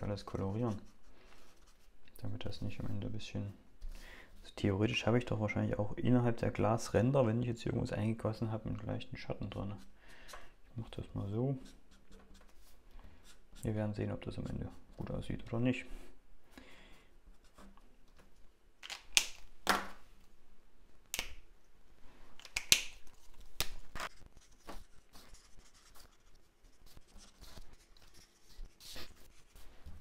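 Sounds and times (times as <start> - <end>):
marker and cap clicks: 18.8 - 19.9, 22.4 - 24.1
marker scratching on card: 24.0 - 29.7.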